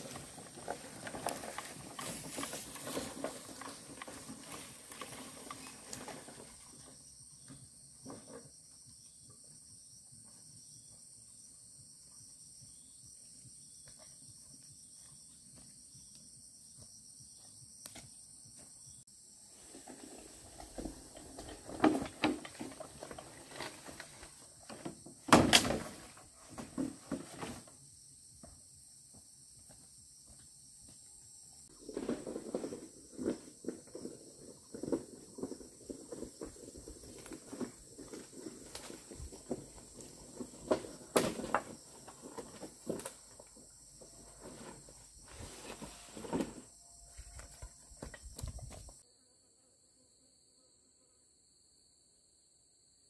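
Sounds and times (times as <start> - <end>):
knocks and clatters of building work: 0.0 - 9.5, 19.7 - 49.0.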